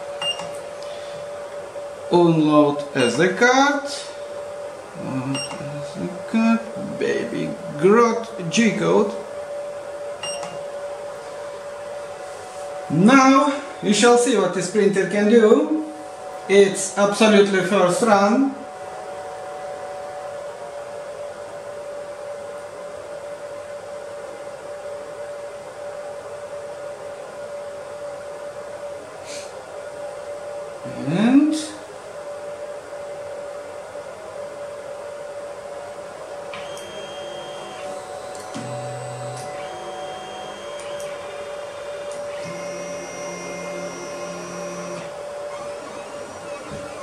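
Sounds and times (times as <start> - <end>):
cooling fans whirring: 0.0 - 47.0
steady hum: 0.0 - 47.0
stepper motors whining: 36.5 - 47.0.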